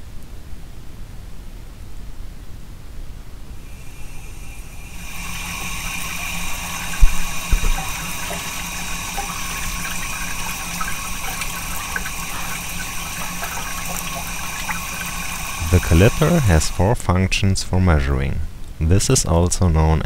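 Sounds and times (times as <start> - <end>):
machine tool hum and whine: 3.6 - 17.0
coolant hissing and splashing: 3.7 - 17.0.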